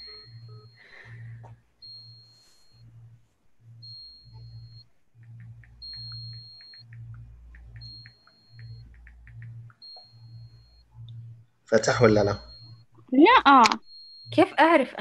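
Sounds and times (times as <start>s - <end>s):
faint high electronic beep: 0.0s - 3.1s, 3.8s - 14.6s
low pulsing hum: 0.0s - 15.0s
soft ticks: 5.2s - 11.2s.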